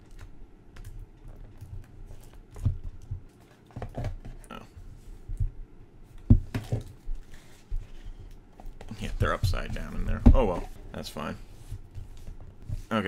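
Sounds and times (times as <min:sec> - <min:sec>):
soft bumps and knocks: 0:06.2 - 0:12.9.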